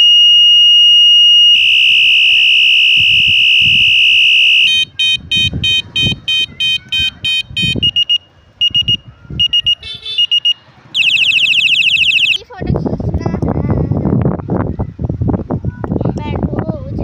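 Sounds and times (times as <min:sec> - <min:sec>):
electronic bicycle horn beeping: 0:00.0 - 0:12.4.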